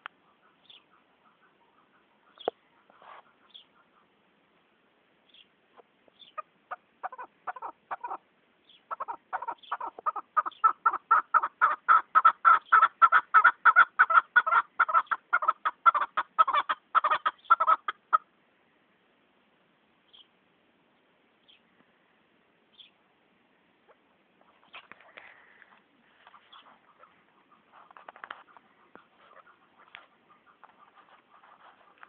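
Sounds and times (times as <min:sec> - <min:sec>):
partridge calling: 0:00.0 - 0:04.1, 0:05.3 - 0:18.3, 0:23.9 - 0:32.0.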